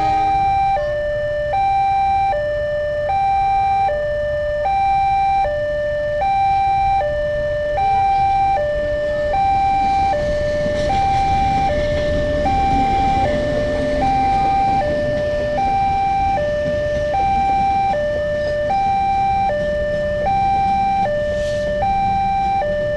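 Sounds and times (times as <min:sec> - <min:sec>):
diesel locomotive rumble: 0:00.0 - 0:01.6, 0:08.6 - 0:22.9
two-tone crossing alarm: 0:00.0 - 0:22.9.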